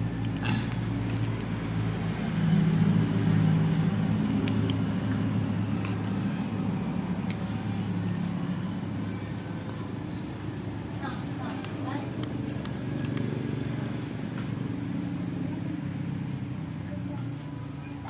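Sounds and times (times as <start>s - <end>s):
cats crunching dry kibble: 0.0s - 9.0s, 10.4s - 15.0s.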